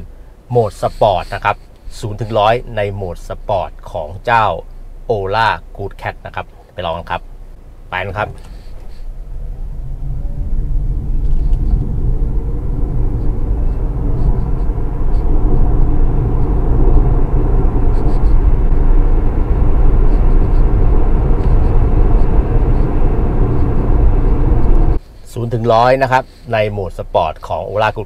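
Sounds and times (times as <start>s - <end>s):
road tyre and wind noise: 0.0s - 28.0s
electric motor whine: 8.4s - 25.0s.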